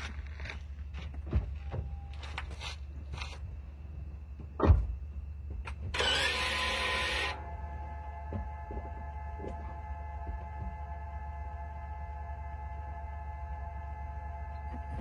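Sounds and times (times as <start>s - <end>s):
car transaxle humming: 3.9s - 15.0s
dull knocks: 4.4s - 6.0s.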